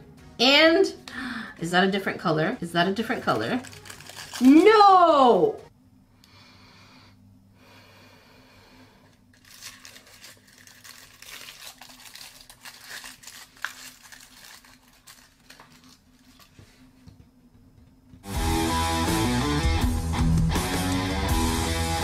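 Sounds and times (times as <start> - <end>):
faint steady hum: 0.0 - 18.2
tissue paper crinkling: 3.1 - 4.8, 9.3 - 16.8.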